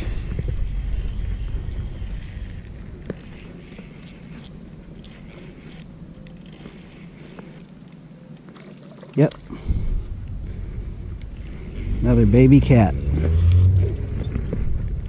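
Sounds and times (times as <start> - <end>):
low rumble: 0.0 - 7.6, 9.4 - 15.0
spinning reel being cranked: 0.6 - 7.7.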